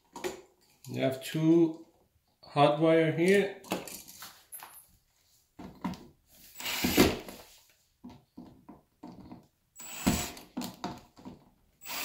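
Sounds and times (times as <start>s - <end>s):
cordless drill running in bursts: 6.6s - 7.2s, 9.8s - 10.4s, 11.8s - 12.0s.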